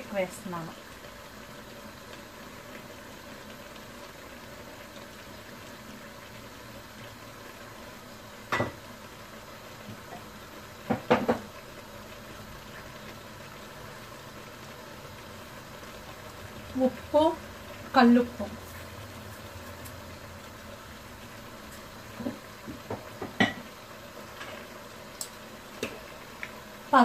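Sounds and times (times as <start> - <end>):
meat cooking hiss: 0.0 - 27.0.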